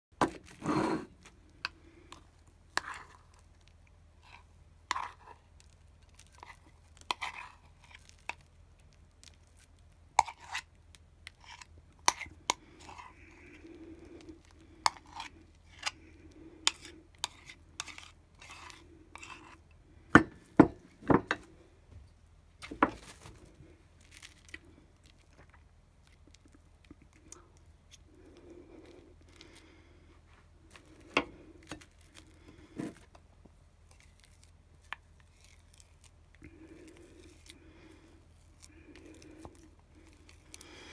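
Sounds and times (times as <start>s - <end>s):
spoon and spatula taps and scrapes: 4.2s - 5.4s, 11.3s - 13.1s, 14.8s - 16.0s, 16.6s - 19.6s.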